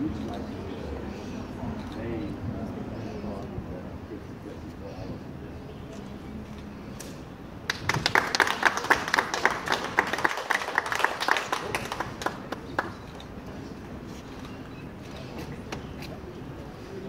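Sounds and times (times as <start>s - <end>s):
people applauding: 7.6s - 13.2s.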